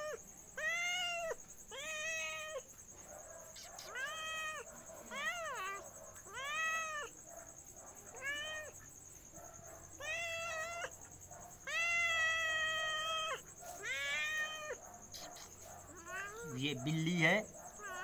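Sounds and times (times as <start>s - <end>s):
cat meowing: 0.0s - 2.7s, 3.6s - 7.2s, 8.1s - 8.8s, 10.0s - 11.0s, 11.6s - 18.0s.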